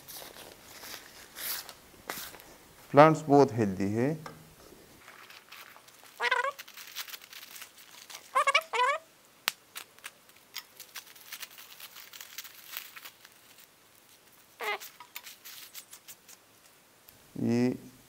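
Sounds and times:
paper crinkling and rustling: 0:00.0 - 0:02.6, 0:05.0 - 0:09.0, 0:09.7 - 0:16.8.

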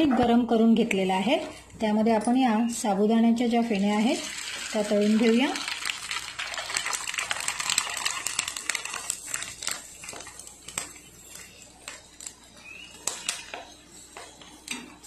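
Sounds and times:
papad sizzling in hot oil: 0:03.2 - 0:15.0.

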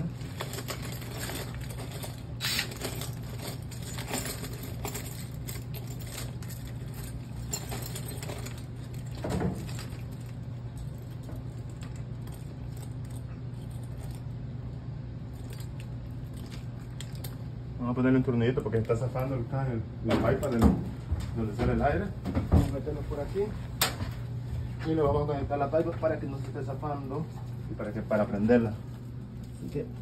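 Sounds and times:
metal screws clinking and rattling: 0:00.0 - 0:14.3.

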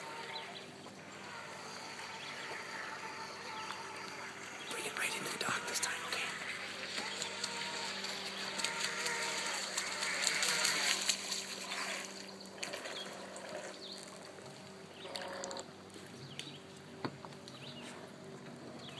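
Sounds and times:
boat motor whine: 0:00.0 - 0:18.9.

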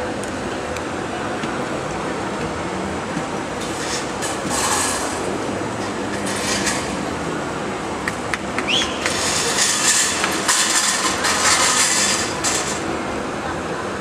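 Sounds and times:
steady rushing street noise: 0:00.0 - 0:14.0.

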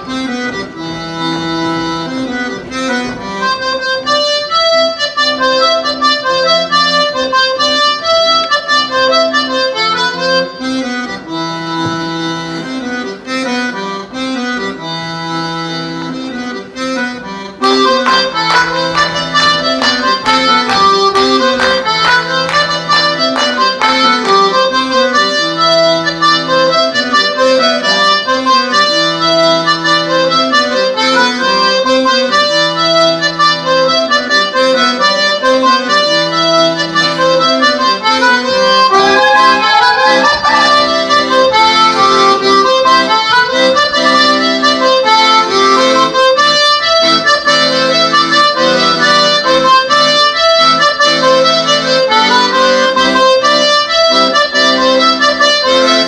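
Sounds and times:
lively instrumental dance music: 0:36.7 - 0:42.4.

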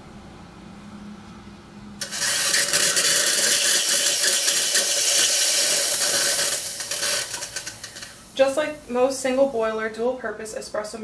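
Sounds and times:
steam wand hissing: 0:02.0 - 0:08.6.

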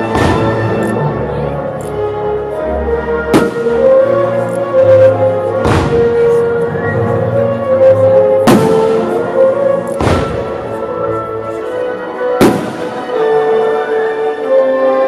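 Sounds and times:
fireworks bursting with sharp bangs: 0:00.0 - 0:00.8, 0:03.3 - 0:04.0, 0:05.6 - 0:06.5, 0:08.4 - 0:09.3, 0:10.0 - 0:10.8, 0:12.3 - 0:13.2
music with sustained notes: 0:00.0 - 0:15.0.

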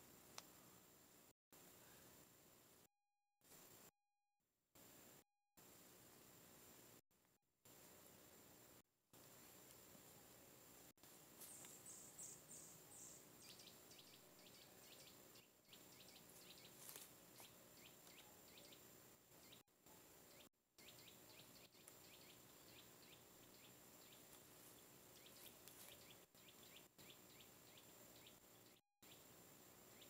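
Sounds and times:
faint small birds chirping: 0:07.7 - 0:30.0.

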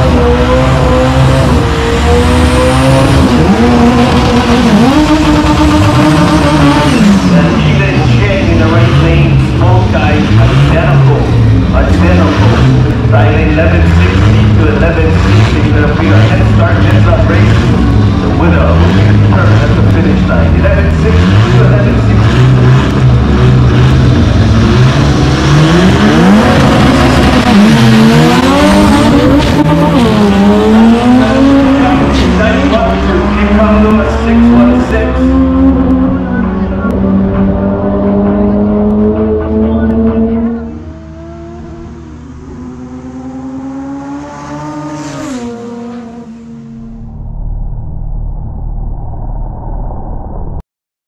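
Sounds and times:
drag car engines accelerating: 0:00.0 - 0:48.8
low steady rumble: 0:46.6 - 0:50.6.

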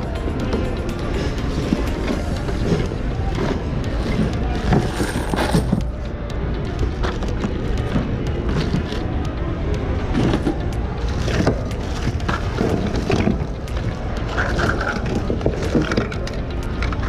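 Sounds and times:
store background hum: 0:00.0 - 0:17.0
items knocking and clattering: 0:10.1 - 0:17.0.

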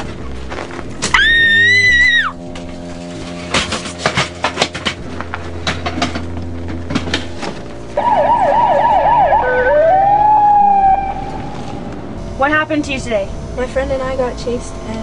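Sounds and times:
ambulance siren: 0:08.0 - 0:12.5.

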